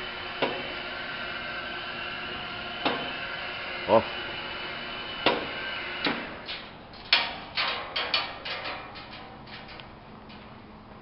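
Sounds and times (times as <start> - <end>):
steady machine hum: 0.0 - 11.0
metallic knocks and clunks: 5.2 - 10.6.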